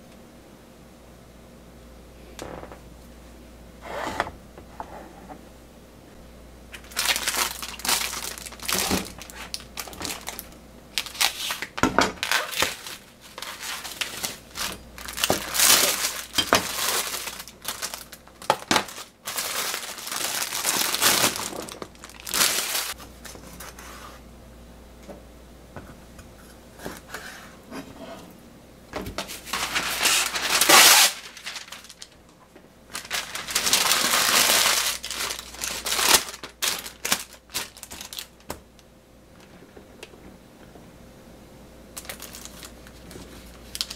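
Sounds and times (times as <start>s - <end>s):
plastic packaging crinkling: 6.7s - 23.7s, 29.2s - 32.3s, 32.9s - 38.8s, 42.0s - 43.9s.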